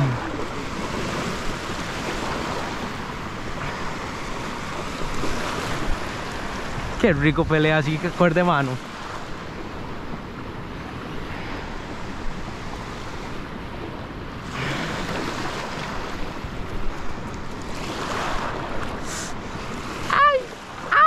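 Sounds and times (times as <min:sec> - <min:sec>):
wind buffeting microphone: 0:00.0 - 0:08.1.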